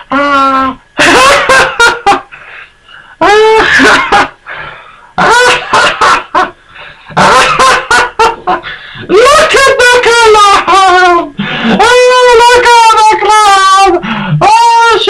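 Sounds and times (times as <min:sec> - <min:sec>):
high-pitched cartoon laughter: 0:00.0 - 0:02.3, 0:03.2 - 0:04.4, 0:05.2 - 0:06.5, 0:07.2 - 0:13.8.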